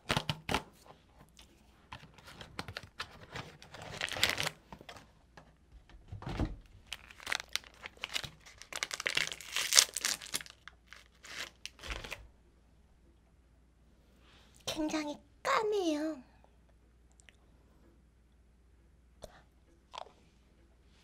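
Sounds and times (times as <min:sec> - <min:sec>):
plastic wrapper crinkling and tearing: 0:02.0 - 0:05.1, 0:06.8 - 0:12.2.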